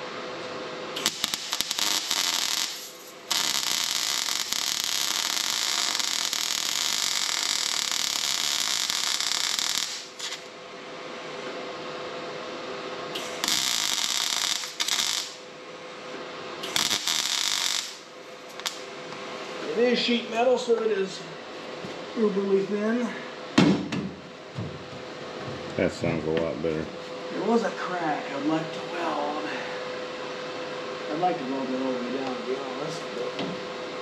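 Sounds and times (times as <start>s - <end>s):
welder arc crackling and sizzling: 0.0s - 10.6s, 13.1s - 15.5s, 16.6s - 21.2s
steady hum: 0.0s - 34.0s.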